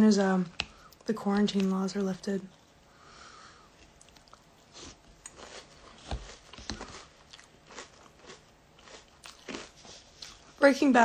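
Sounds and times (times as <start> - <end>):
chewing crunchy cereal: 3.8 - 10.6.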